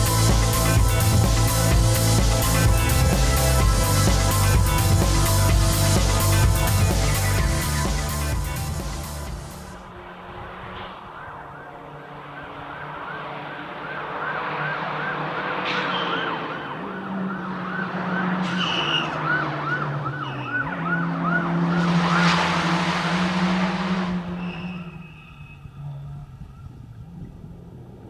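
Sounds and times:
car engine changing gears: 0:00.0 - 0:28.0
siren yelping: 0:10.4 - 0:22.5.

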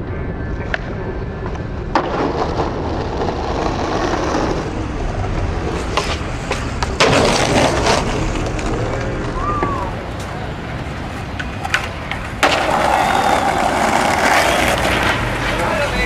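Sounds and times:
skateboard wheels rolling: 0:00.0 - 0:16.0
skateboard landing slap: 0:11.4 - 0:15.3.

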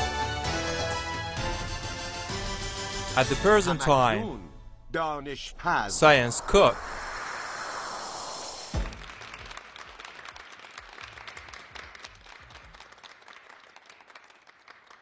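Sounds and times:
swish ending in thump: 0:06.3 - 0:09.4
studio audience applause: 0:08.8 - 0:15.0.

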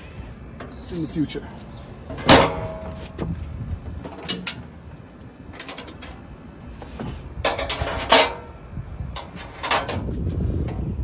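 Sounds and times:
metallic clanks and rattles: 0:02.0 - 0:03.4, 0:04.0 - 0:06.3, 0:07.0 - 0:10.8.

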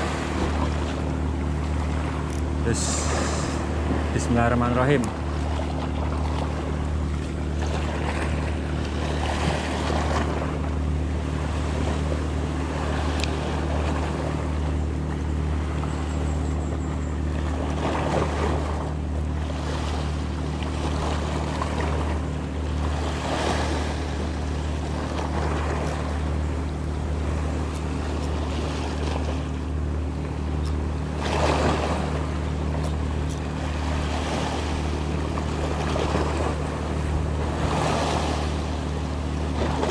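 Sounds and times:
steady low hum: 0:00.0 - 0:39.9
waves splashing on rocks: 0:02.3 - 0:05.2.

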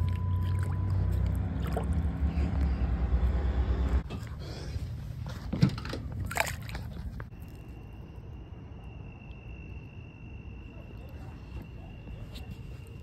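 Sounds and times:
fish handling knocks and rustles: 0:05.3 - 0:07.3.

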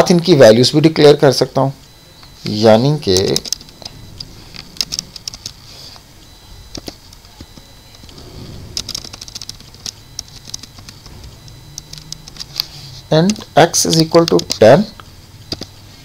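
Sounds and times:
low steady hum: 0:00.0 - 0:16.0
keyboard keys clicking: 0:03.1 - 0:05.6, 0:06.6 - 0:14.7, 0:15.5 - 0:15.8.

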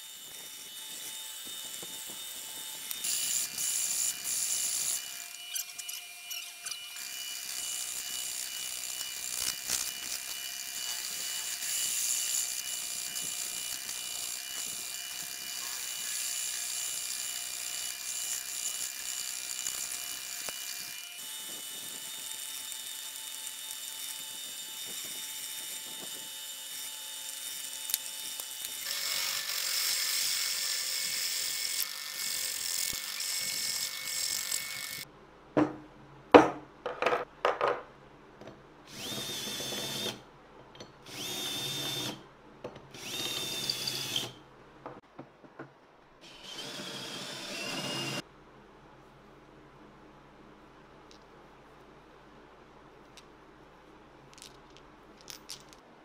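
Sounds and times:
drill bit grinding into steel: 0:00.1 - 0:35.0, 0:41.1 - 0:42.2, 0:43.0 - 0:44.4.

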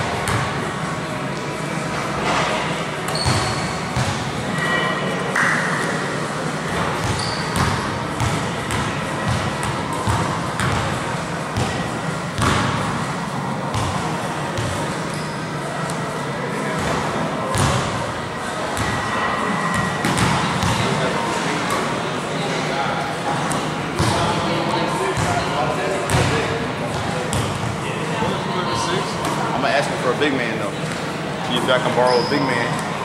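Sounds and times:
sneakers squeaking: 0:00.1 - 0:00.6, 0:01.4 - 0:22.0, 0:23.3 - 0:29.5, 0:30.7 - 0:33.0
basketball bouncing on gym floor: 0:07.0 - 0:10.9, 0:11.6 - 0:12.7, 0:16.8 - 0:17.9, 0:20.0 - 0:20.8.

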